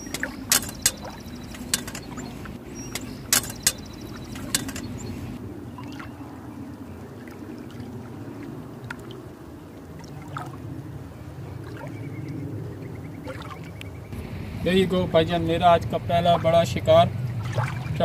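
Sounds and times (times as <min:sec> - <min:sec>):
sharp knocks: 0:00.0 - 0:05.3
water running and trickling: 0:00.0 - 0:05.4.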